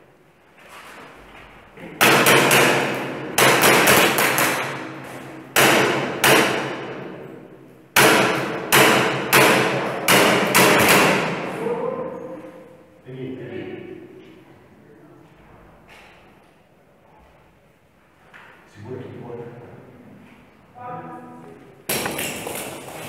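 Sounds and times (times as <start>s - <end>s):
sharp bangs echoing in corridor: 1.8s - 13.0s, 21.8s - 23.0s.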